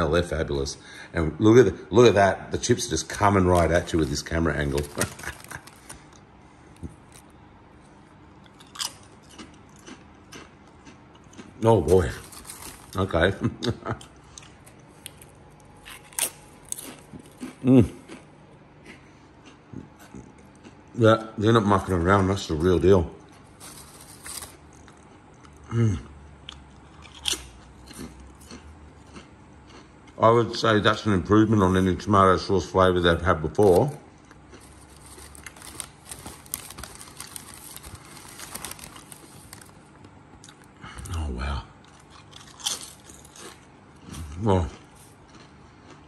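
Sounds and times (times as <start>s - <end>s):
crisps being crunched: 2.9s - 6.2s, 8.4s - 13.4s, 14.4s - 18.2s, 23.3s - 25.5s, 26.8s - 29.8s, 33.2s - 41.2s, 41.8s - 46.0s
crisp packet rustling: 3.1s - 6.2s, 11.9s - 13.3s, 23.5s - 24.7s, 34.6s - 39.9s.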